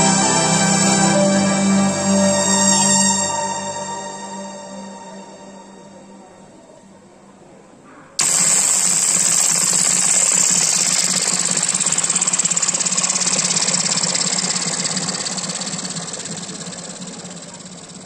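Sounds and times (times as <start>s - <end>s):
music: 0.0s - 6.8s
loud fast rattling noise: 8.2s - 18.0s.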